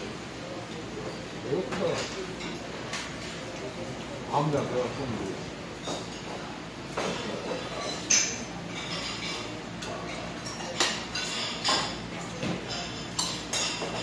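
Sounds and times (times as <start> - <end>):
utensils clinking on stone dishes: 0.8 - 14.0.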